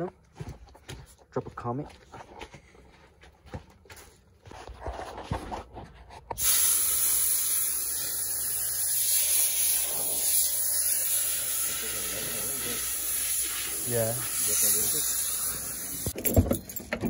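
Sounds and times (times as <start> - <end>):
loud steady hiss: 6.4 - 16.2.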